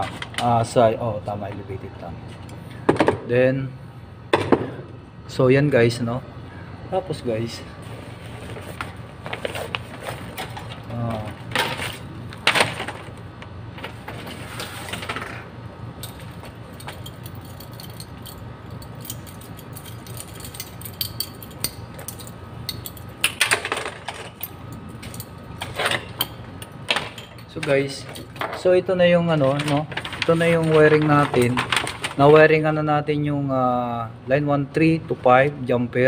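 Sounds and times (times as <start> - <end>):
steady low hum: 0.0 - 36.0
clicks and rattles of wires: 8.5 - 15.4, 29.3 - 32.4.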